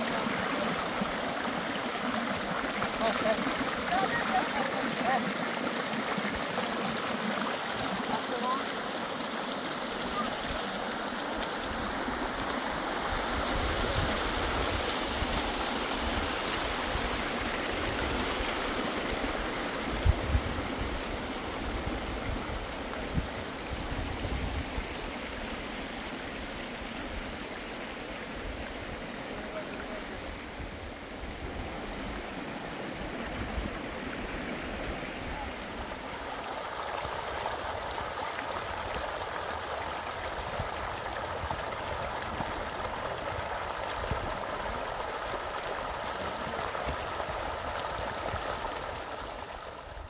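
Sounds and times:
water running: 0:00.0 - 0:15.2.

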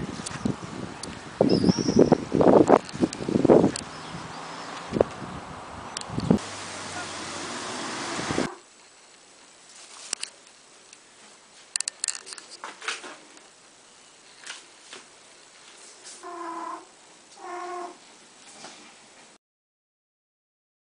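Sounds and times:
brief rustle: 0:09.7 - 0:10.5, 0:11.2 - 0:13.5.

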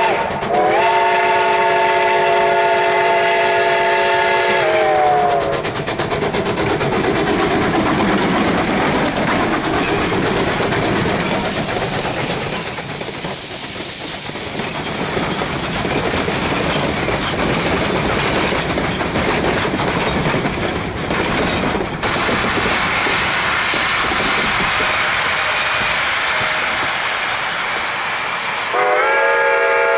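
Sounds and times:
train wheels clacking on rail: 0:00.0 - 0:29.6
steam hissing: 0:00.0 - 0:29.9
steam locomotive chuffing: 0:00.0 - 0:29.9.

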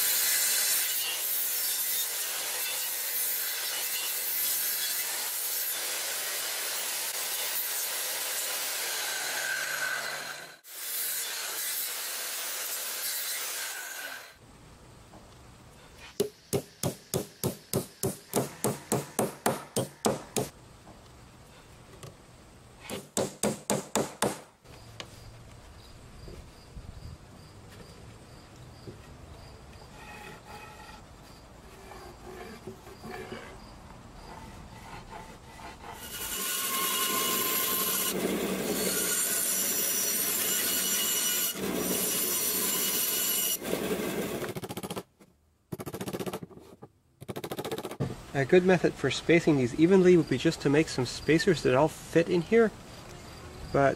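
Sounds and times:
hammer driving nails into wood: 0:16.2 - 0:20.5, 0:22.8 - 0:24.5.

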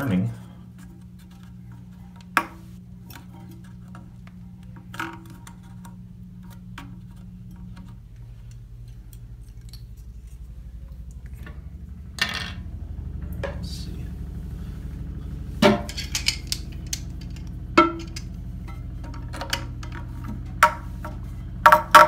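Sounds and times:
faint low hum: 0:00.0 - 0:22.0
plastic parts clicking and knocking: 0:15.6 - 0:22.0.

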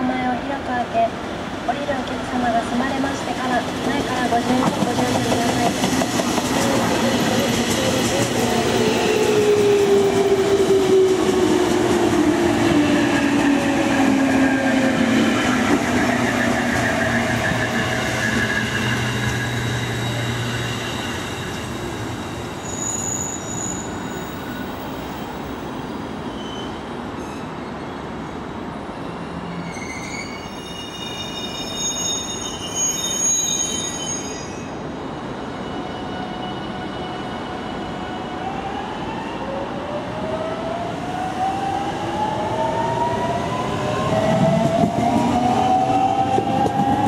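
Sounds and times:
wheels rumbling on rail: 0:03.1 - 0:26.1, 0:41.2 - 0:47.0
high brake squeal: 0:16.2 - 0:24.8, 0:26.2 - 0:28.0, 0:29.4 - 0:34.8.

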